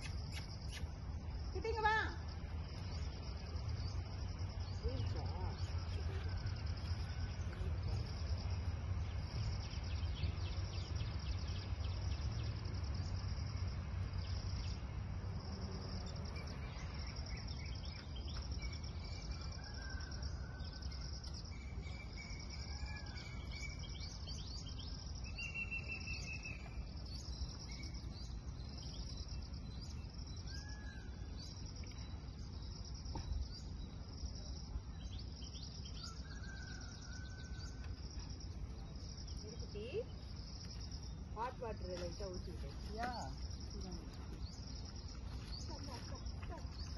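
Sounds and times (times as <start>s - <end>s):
short bird chirps: 0.0s - 1.0s
crickets chirping: 0.0s - 46.9s.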